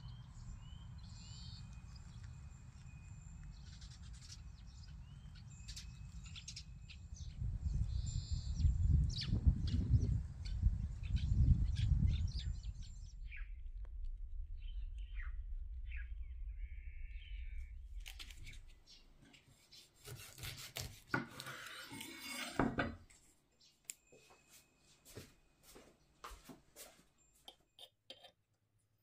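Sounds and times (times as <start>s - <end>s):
birds chirping: 0.0s - 13.6s
wind rumbling on microphone: 0.0s - 19.0s
knife sawing through plastic: 19.5s - 22.7s.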